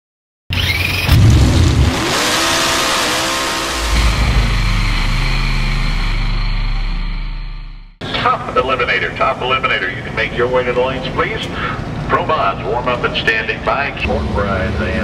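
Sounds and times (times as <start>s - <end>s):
engine revving up: 0.5s - 8.0s, 14.0s - 15.0s
noisy burst: 0.5s - 10.4s.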